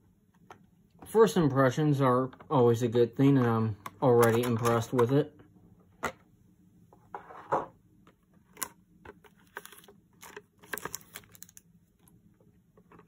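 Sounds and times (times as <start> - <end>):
plastic packaging clicks and snaps: 9.5 - 11.7.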